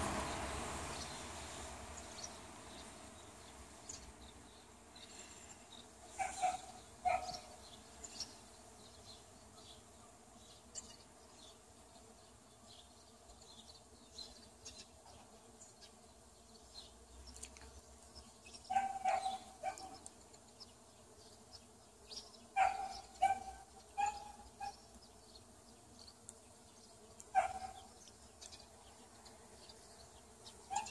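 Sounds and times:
bees buzzing: 0.0 - 30.9
dog barking: 6.2 - 7.4, 18.7 - 20.0, 22.6 - 24.8, 27.4 - 27.9.

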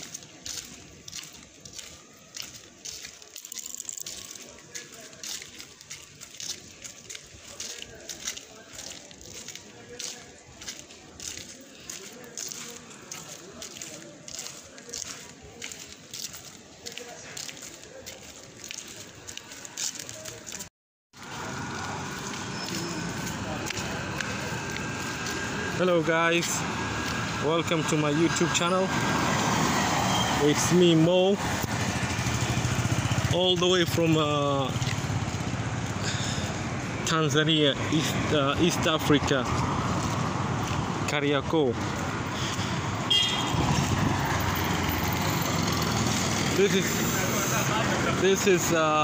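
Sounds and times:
faint voices: 0.0 - 28.8
street traffic noise: 0.0 - 49.0.

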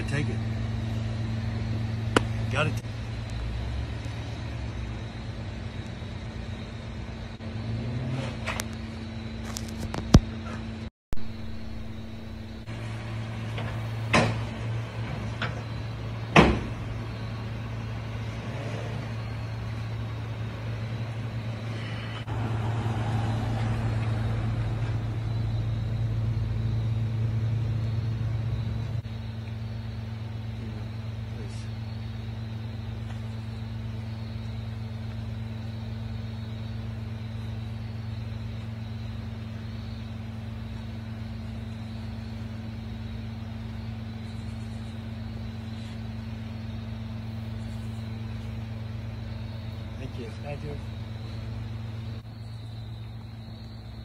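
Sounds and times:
low engine hum: 0.0 - 54.0
sharp knocks: 2.1 - 2.4, 16.3 - 16.8.

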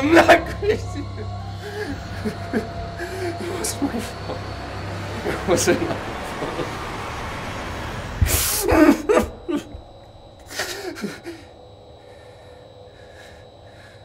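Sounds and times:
young man sobbing: 0.0 - 6.8, 8.3 - 11.6.

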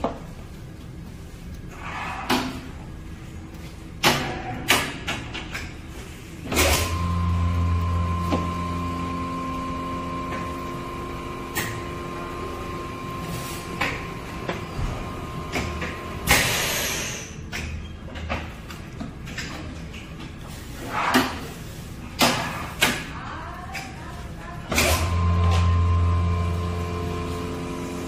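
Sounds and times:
machine humming: 6.5 - 17.2, 24.7 - 28.0
high machine whine: 6.5 - 17.3.

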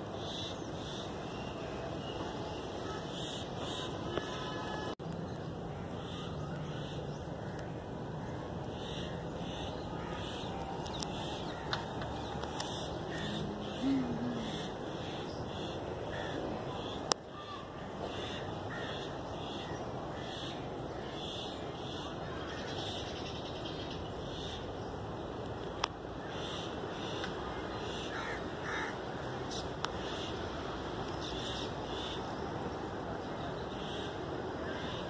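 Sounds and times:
outdoor background noise: 0.0 - 35.0
birds calling: 5.3 - 17.2.

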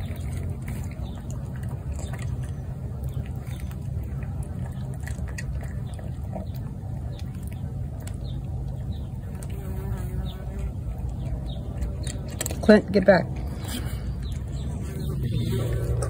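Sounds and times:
cat crunching dry kibble: 0.0 - 9.8, 10.6 - 16.0
steady low rumble: 10.6 - 16.0.

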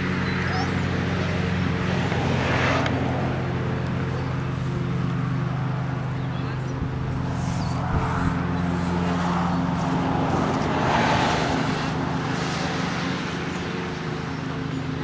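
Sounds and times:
car driving past: 6.8 - 14.0.

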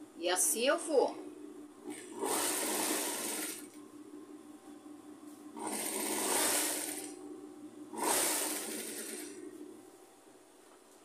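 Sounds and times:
sewing machine stitching: 1.8 - 3.8, 5.6 - 7.2, 7.9 - 9.5.

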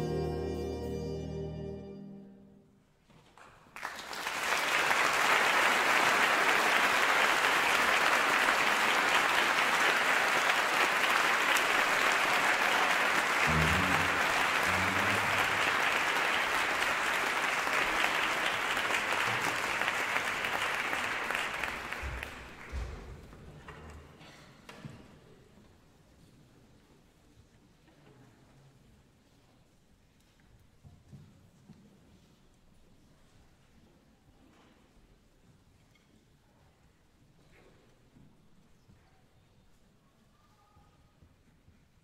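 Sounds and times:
audience applauding: 3.8 - 22.7.

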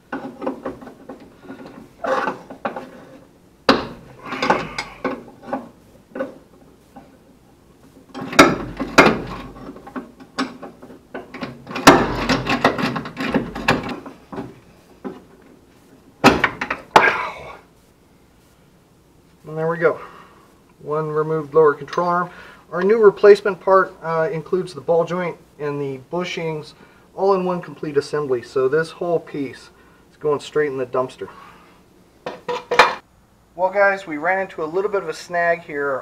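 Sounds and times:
dull thud: 16.2 - 17.2.

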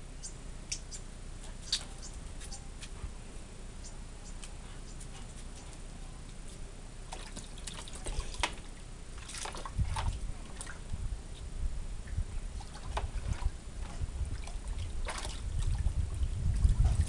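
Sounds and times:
water splashing in pool: 7.1 - 10.9, 12.6 - 17.0.

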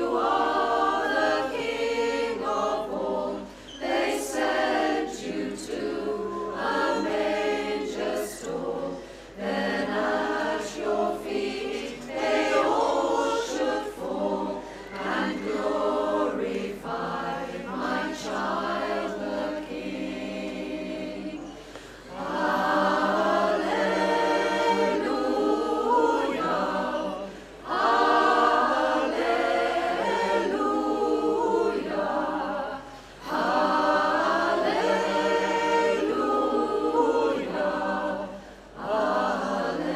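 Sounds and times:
women's choir singing a cappella: 0.0 - 39.9.

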